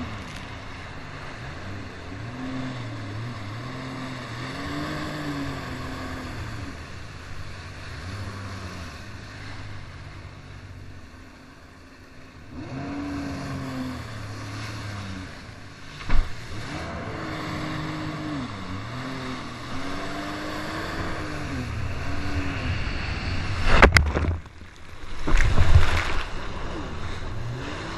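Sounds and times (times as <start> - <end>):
watercraft engine running: 0.0 - 27.9
water crashing: 12.5 - 27.9
hull slapping water: 12.7 - 27.9.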